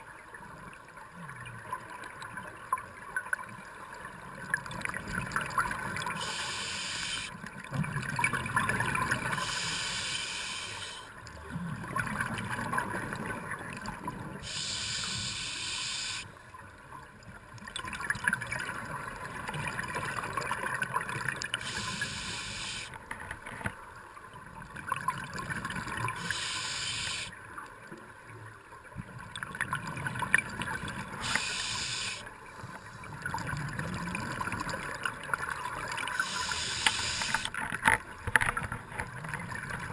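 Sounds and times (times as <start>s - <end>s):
regulator hissing inhale: 6.2s - 7.3s, 9.3s - 11.1s, 14.4s - 16.3s, 21.6s - 23.0s, 26.2s - 27.3s, 31.2s - 32.8s, 36.2s - 37.5s.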